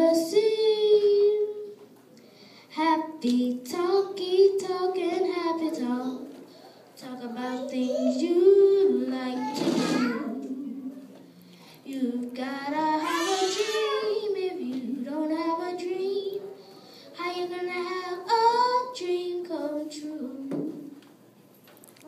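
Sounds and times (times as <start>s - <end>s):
girl singing into a microphone: 0.0s - 1.8s, 2.7s - 6.4s, 7.0s - 10.9s, 11.8s - 16.4s, 17.1s - 21.0s.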